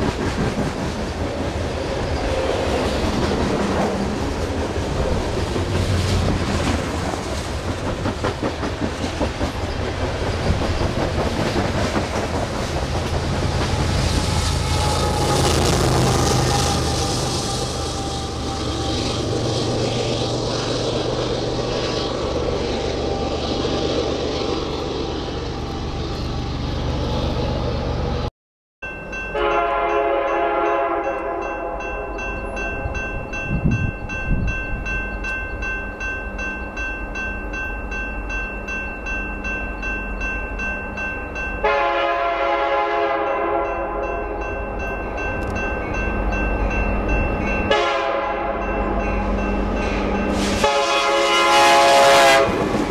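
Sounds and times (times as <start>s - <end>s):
train rumbling by: 0.0s - 52.9s
locomotive horn: 13.7s - 19.7s, 29.4s - 32.1s, 41.6s - 44.3s, 47.7s - 48.8s, 50.4s - 52.7s.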